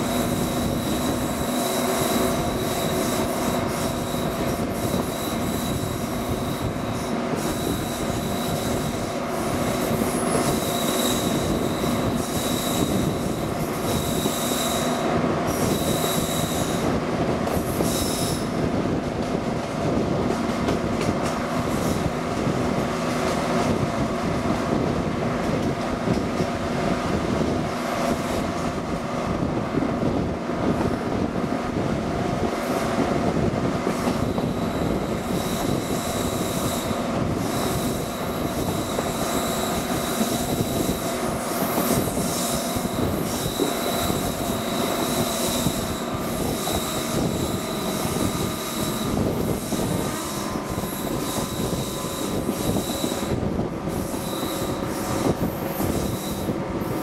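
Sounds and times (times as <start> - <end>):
train wheels clattering on track: 0.0 - 57.0
thin high whine: 34.2 - 57.0.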